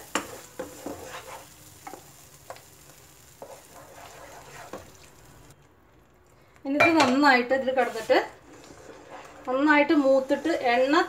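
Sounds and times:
spatula tapping and scraping pan: 0.0 - 5.0
paste sizzling in oil: 0.0 - 5.6, 7.6 - 11.0.

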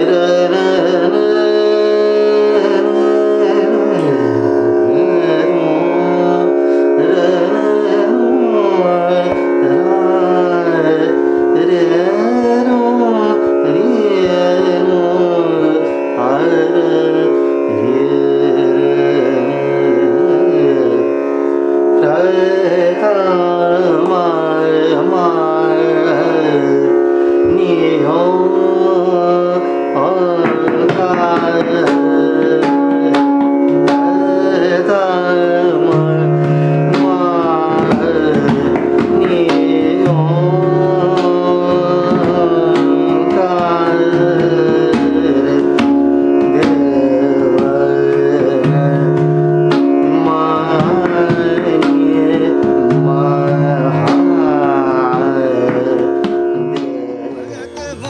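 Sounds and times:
man singing slow melody: 0.0 - 58.0
tanpura drone: 0.0 - 58.0.

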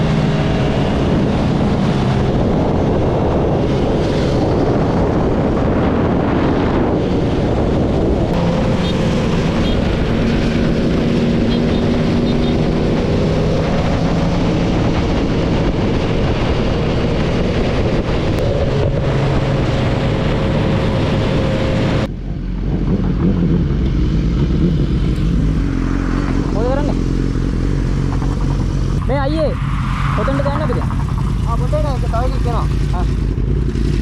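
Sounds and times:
wind rush on microphone: 0.0 - 34.0
motorcycle engine running: 7.0 - 29.5, 30.4 - 34.0.

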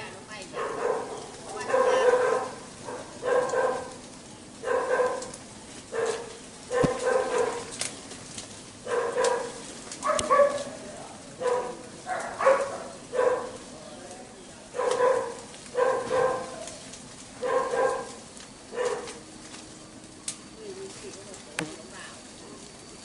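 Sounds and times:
dog barking: 0.5 - 4.0, 4.6 - 5.3, 5.9 - 7.7, 8.8 - 10.8, 11.4 - 13.6, 14.7 - 16.7, 17.4 - 19.2.

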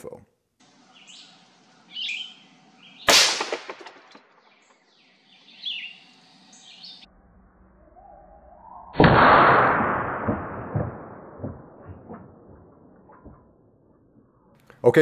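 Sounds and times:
faint birds chirping: 0.6 - 3.2, 4.0 - 9.0
suppressed rifle shot: 3.1 - 4.3, 9.0 - 13.5.

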